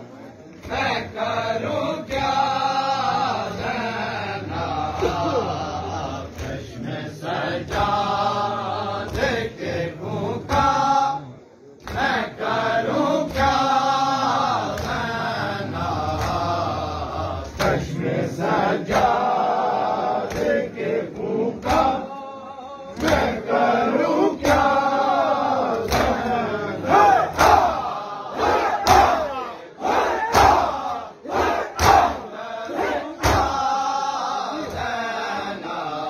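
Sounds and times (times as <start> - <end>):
men chanting together: 0.6 - 36.0
hand slaps on bare chests: 20.2 - 20.6, 21.6 - 22.0, 23.0 - 23.4, 24.4 - 24.8, 25.7 - 26.3, 27.2 - 29.3, 30.2 - 33.8.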